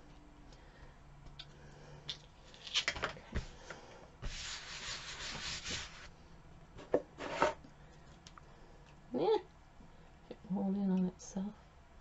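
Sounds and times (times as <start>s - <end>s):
thin paper rubbing and rustling: 4.2s - 6.1s.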